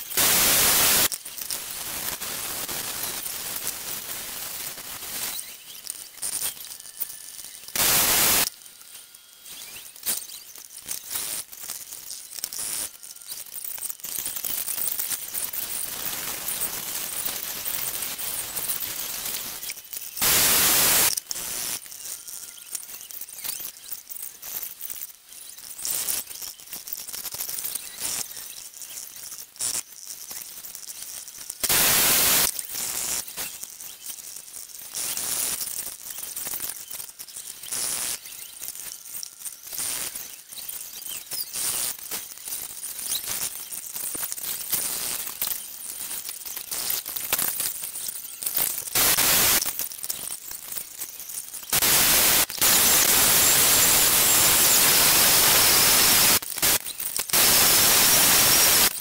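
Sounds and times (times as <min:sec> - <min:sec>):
hot-air welder hissing: 0:00.0 - 0:11.7, 0:14.1 - 0:22.1, 0:31.6 - 0:33.5, 0:48.9 - 0:49.7, 0:51.7 - 0:59.0
crackling and clicks: 0:00.0 - 0:59.0.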